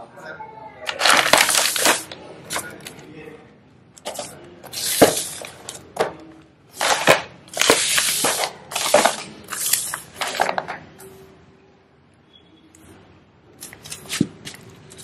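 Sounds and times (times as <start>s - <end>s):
packaging crinkling and rustling: 0.9s - 3.0s, 4.0s - 5.8s, 6.8s - 10.8s.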